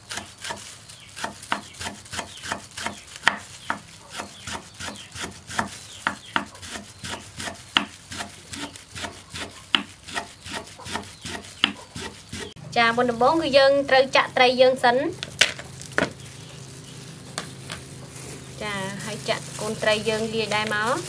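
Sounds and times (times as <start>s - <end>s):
knife chopping on wooden board: 1.2s - 12.6s.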